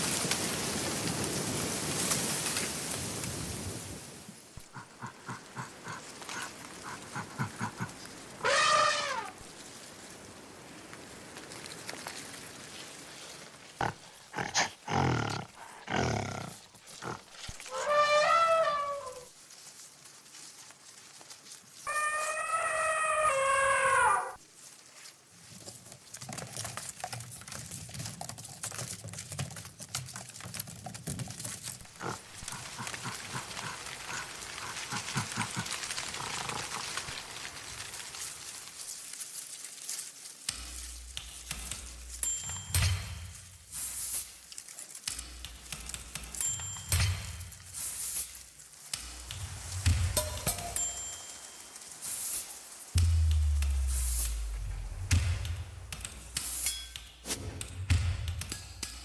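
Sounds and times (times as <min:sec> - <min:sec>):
low crackling rustling: 0:00.0 - 0:59.0
animal-like falling cries: 0:08.4 - 0:09.4, 0:17.6 - 0:19.3, 0:21.9 - 0:24.4
sharp knocks: 0:53.0 - 0:56.5.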